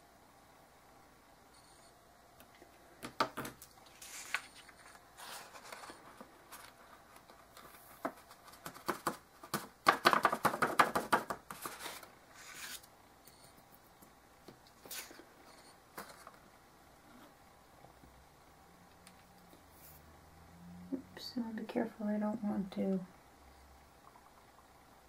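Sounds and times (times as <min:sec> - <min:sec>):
paper rustling and crinkling: 0:03.8 - 0:09.6, 0:11.5 - 0:12.9.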